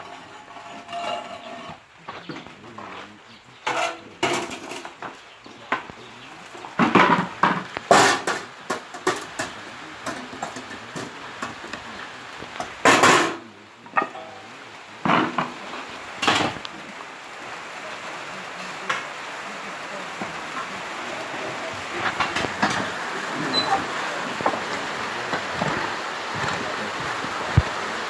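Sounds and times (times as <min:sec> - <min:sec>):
metal clanks knocks and scrapes: 0:00.0 - 0:05.9, 0:06.8 - 0:11.6, 0:12.6 - 0:14.3, 0:15.0 - 0:15.6, 0:22.0 - 0:26.6.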